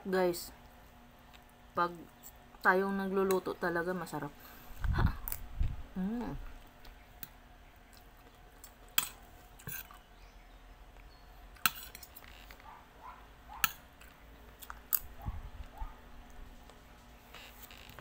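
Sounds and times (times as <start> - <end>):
person chewing: 6.5 - 10.0, 13.5 - 15.8.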